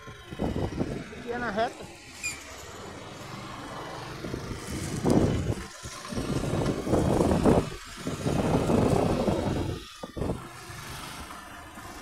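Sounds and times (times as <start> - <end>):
wind rushing over microphone: 0.0 - 1.5, 4.0 - 10.5
motorcycle engine and road noise: 0.0 - 12.0.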